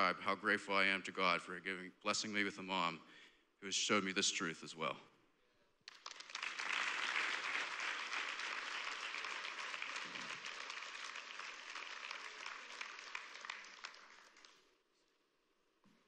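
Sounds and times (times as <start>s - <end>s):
congregation applauding: 5.9s - 14.7s.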